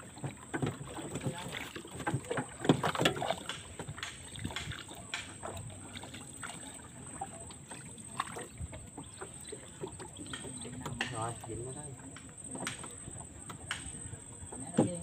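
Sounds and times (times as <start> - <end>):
water lapping against boat: 0.0 - 15.0
knocks on wooden boat: 0.1 - 5.7, 9.8 - 15.0.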